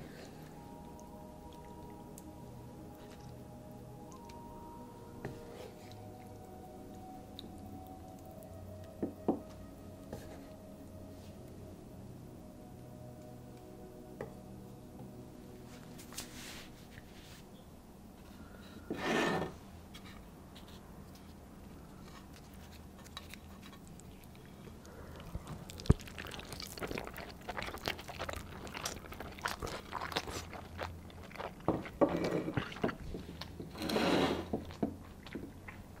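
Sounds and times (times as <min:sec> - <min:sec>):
tacos crackling and rustling: 0:19.7 - 0:36.0.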